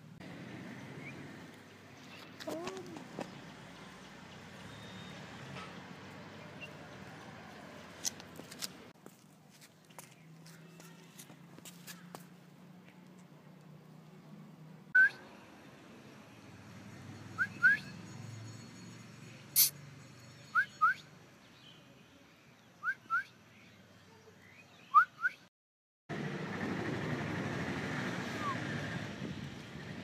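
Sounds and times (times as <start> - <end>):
short rising whistles: 28.2 - 28.9.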